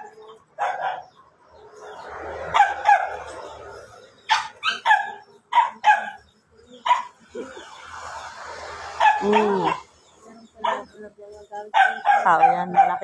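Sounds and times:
dog barking: 0.0s - 1.2s, 2.5s - 3.5s, 4.3s - 6.2s, 6.8s - 7.2s, 9.0s - 9.9s, 10.6s - 11.0s, 11.7s - 13.0s.

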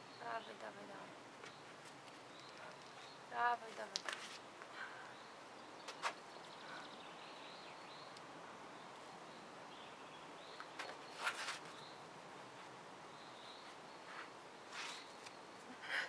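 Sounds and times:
birds chirping: 0.0s - 4.0s, 4.6s - 16.0s.

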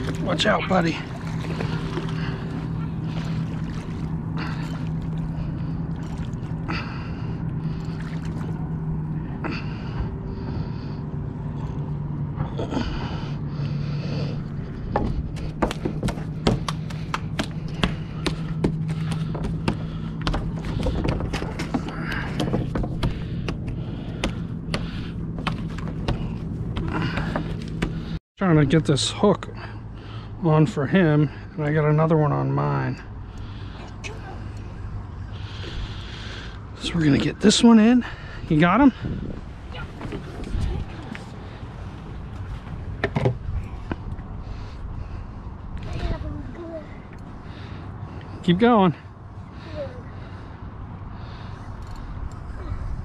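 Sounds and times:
low engine hum: 0.0s - 53.0s
fish slapping on wooden boards: 14.9s - 28.2s.

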